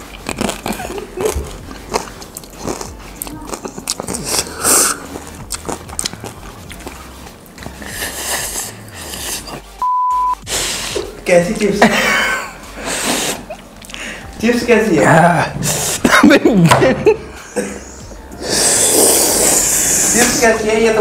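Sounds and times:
crunching and chewing chips: 0:00.0 - 0:09.7
background music: 0:00.0 - 0:21.0
test-tone beep: 0:09.8 - 0:10.4.

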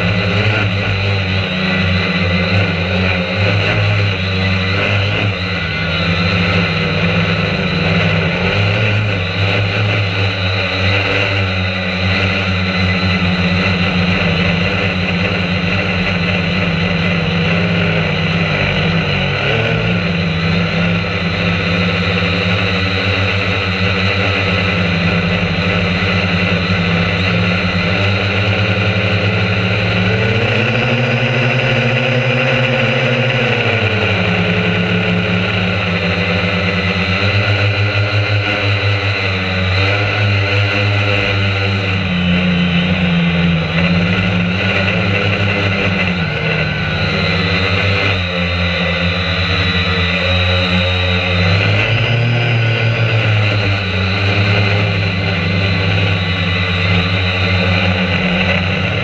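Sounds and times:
drone motors and propellers whirring: 0:00.0 - 0:59.0.

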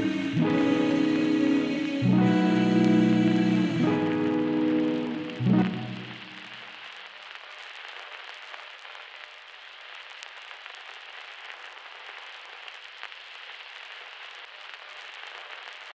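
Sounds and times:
steady hiss: 0:00.0 - 0:15.9
small clicks and crackles: 0:06.2 - 0:15.9.

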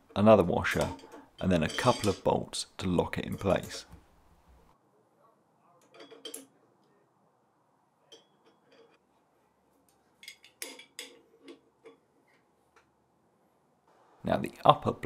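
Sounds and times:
metal parts clinking: 0:00.7 - 0:02.4, 0:05.8 - 0:06.5.

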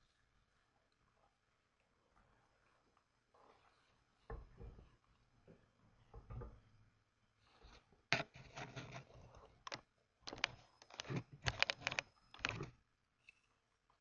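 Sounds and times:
computer keyboard typing: 0:09.7 - 0:12.7.

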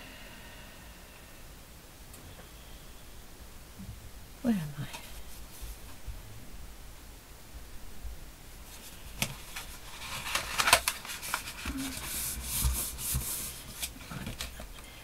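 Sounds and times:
rubbing on folded card: 0:05.2 - 0:05.9, 0:08.6 - 0:14.6
card rustling: 0:08.7 - 0:14.8.

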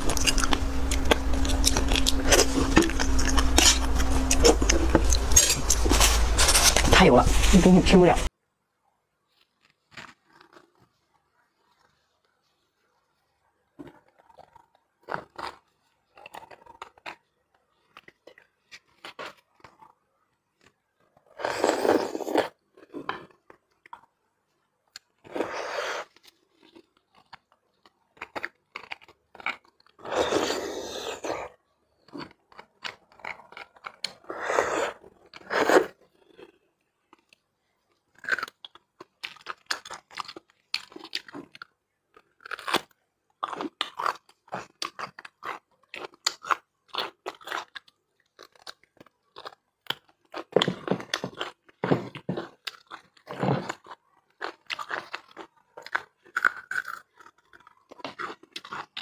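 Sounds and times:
marrow sucked and chewed: 0:33.1 - 0:36.0.

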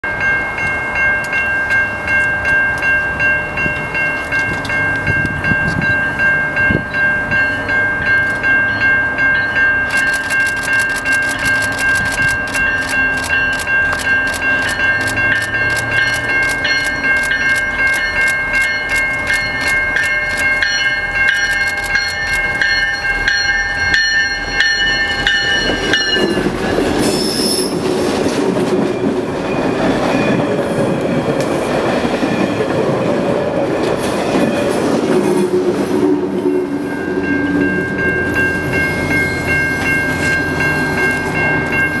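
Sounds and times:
rolling coaches rumbling: 0:00.2 - 0:42.0
train wheel squeal: 0:25.3 - 0:28.4.

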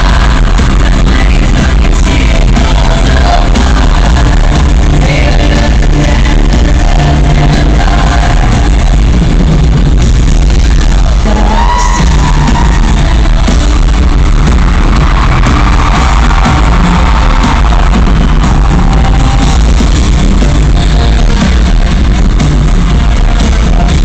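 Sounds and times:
live pop music over loudspeakers: 0:00.0 - 0:24.0.

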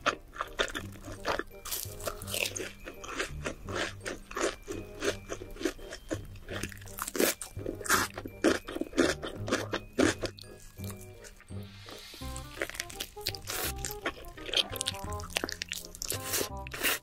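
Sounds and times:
crunchy chewing: 0:00.0 - 0:17.0.

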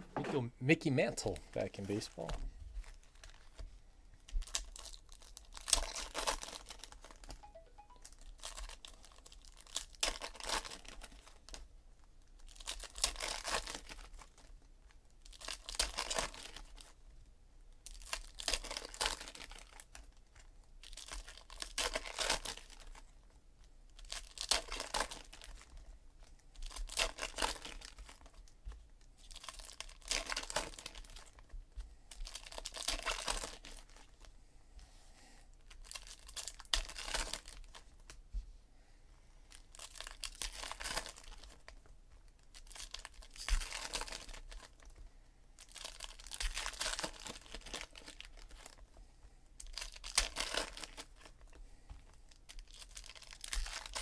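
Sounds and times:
foil wrappers tearing and crinkling: 0:04.4 - 0:07.3, 0:08.3 - 0:11.6, 0:12.4 - 0:14.5, 0:15.2 - 0:16.9, 0:17.8 - 0:23.1, 0:24.0 - 0:25.8, 0:26.6 - 0:28.5, 0:29.2 - 0:31.4, 0:32.2 - 0:34.2, 0:35.6 - 0:38.0, 0:39.5 - 0:44.9, 0:45.6 - 0:48.8, 0:49.6 - 0:51.6, 0:52.3 - 0:54.0.

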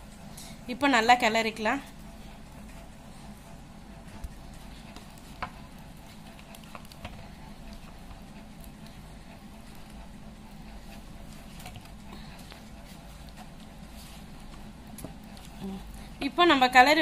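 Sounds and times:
hand stirring wet batter: 0:00.0 - 0:17.0.

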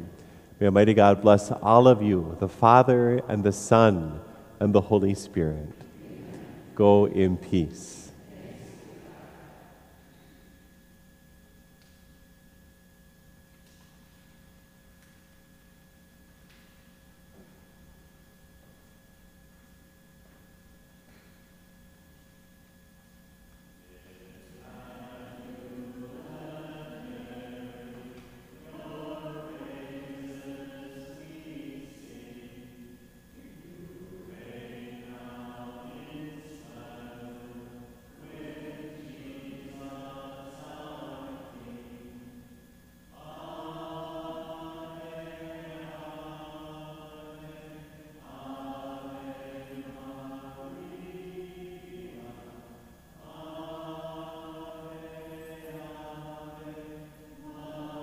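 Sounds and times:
voices singing a hymn: 0:00.0 - 0:10.7, 0:23.7 - 0:58.0.

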